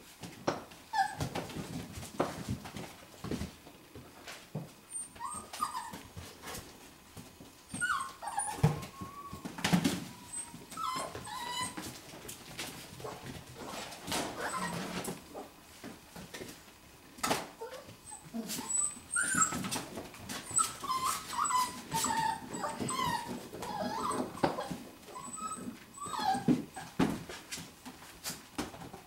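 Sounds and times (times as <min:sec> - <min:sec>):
puppies whimpering and yipping: 0:00.9 - 0:01.4, 0:04.9 - 0:06.2, 0:07.7 - 0:12.0, 0:13.0 - 0:15.5, 0:17.6 - 0:27.1.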